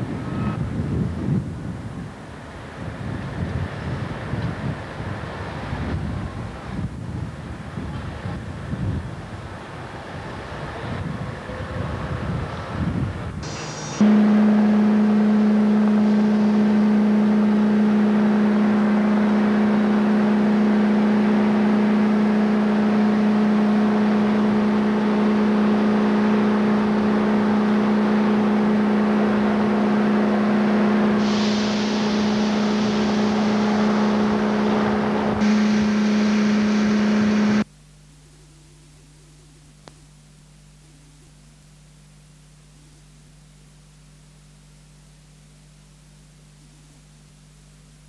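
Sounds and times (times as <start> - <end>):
diesel engines running: 0.0 - 37.7.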